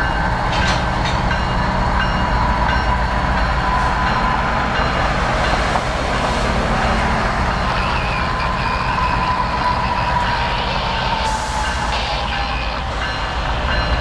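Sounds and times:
diesel locomotive engine rumble: 0.0 - 14.0
high whine: 6.4 - 14.0.

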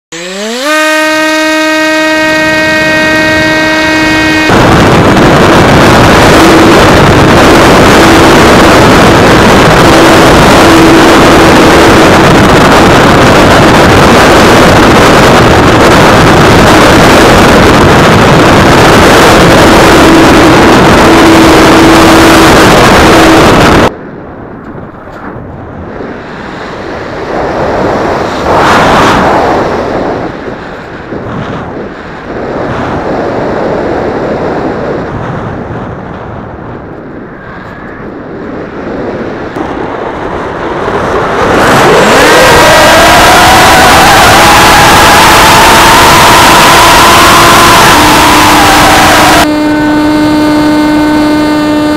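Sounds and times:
motor and propeller tone: 0.0 - 23.9
wind rushing over microphone: 0.1 - 51.9.

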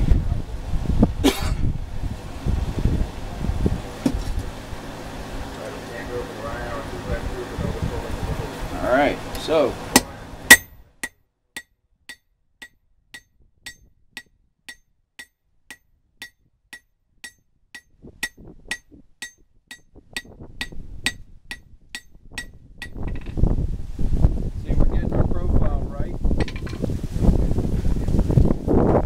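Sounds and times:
hammer striking metal on anvil: 9.9 - 23.3.

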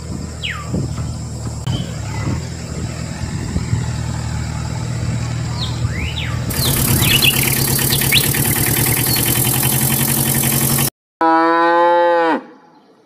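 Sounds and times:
vehicle engine running with hiss: 0.0 - 10.9
cow mooing: 11.2 - 12.6.

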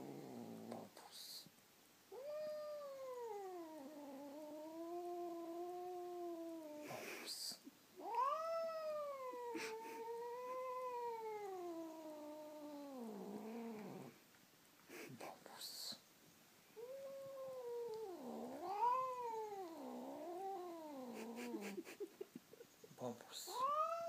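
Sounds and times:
cat yowling: 2.1 - 6.8, 8.0 - 14.0, 16.8 - 21.8, 23.5 - 24.0.

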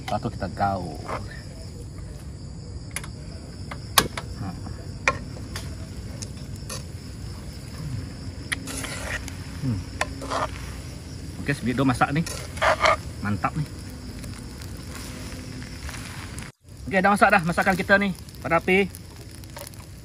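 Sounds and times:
crickets chirring: 0.0 - 20.0
metal tongs scraping a wok: 8.5 - 10.9, 12.0 - 13.1.

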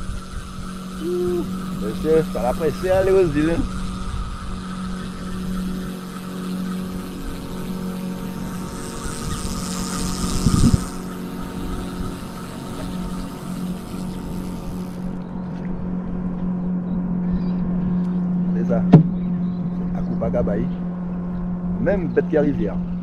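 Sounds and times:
motorboat engine humming: 0.0 - 23.0
brief thump: 18.9 - 19.2.

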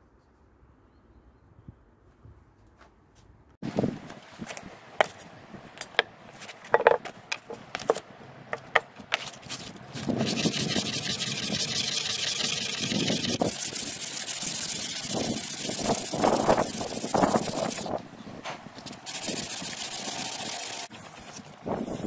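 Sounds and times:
ring scraping on sandpaper: 9.1 - 18.0, 18.8 - 22.0.

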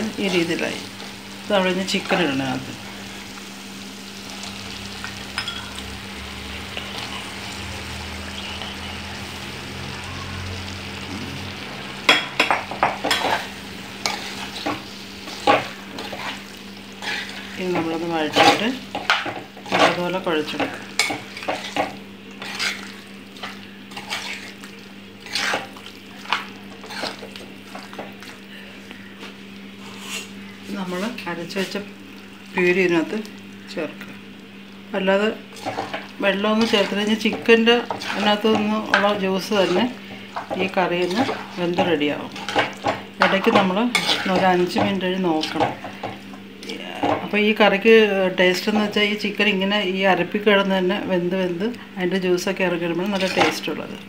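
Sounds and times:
onions sizzling in a pot: 0.0 - 54.0
spoon scraping a pot: 18.3 - 24.6, 25.2 - 28.1, 29.8 - 30.3, 35.6 - 46.2.

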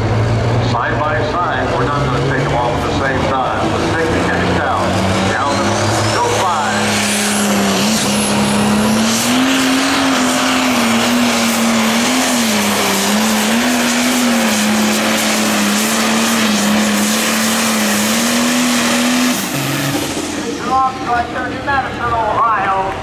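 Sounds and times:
diesel engine at full throttle: 0.0 - 23.0.

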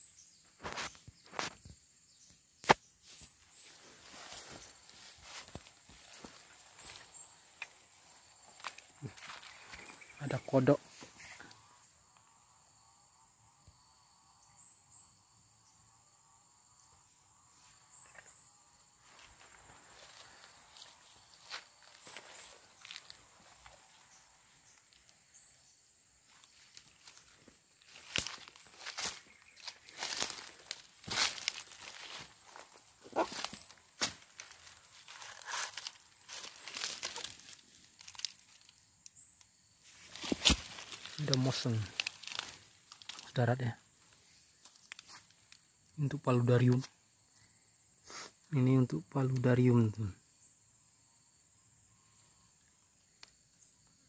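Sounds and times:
high-pitched insect chorus: 0.0 - 54.0
dry leaves crackling underfoot: 3.1 - 11.6, 19.0 - 25.1, 26.2 - 38.8, 39.8 - 45.7.

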